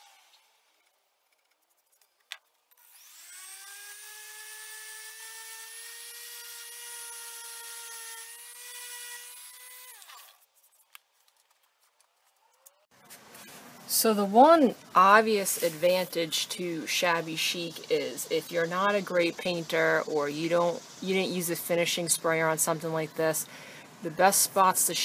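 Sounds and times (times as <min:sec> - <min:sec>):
orbital sander motor whine: 0:02.8 - 0:10.1.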